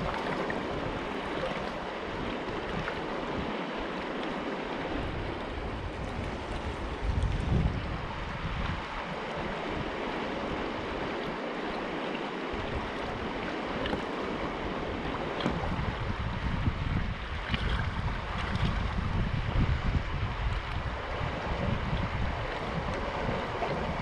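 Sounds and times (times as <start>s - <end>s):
creek water rushing over rocks: 0.0s - 24.0s
wind buffeting microphone: 0.0s - 24.0s.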